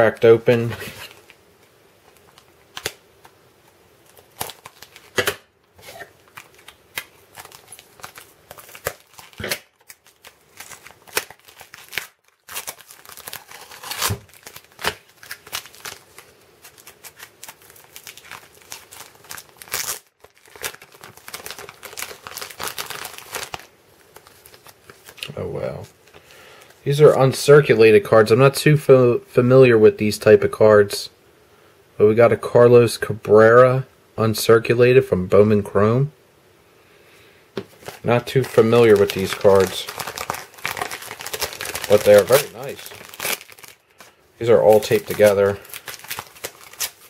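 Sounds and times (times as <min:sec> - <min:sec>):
tape crinkling and tearing: 0:00.6 - 0:26.7, 0:37.6 - 0:47.0.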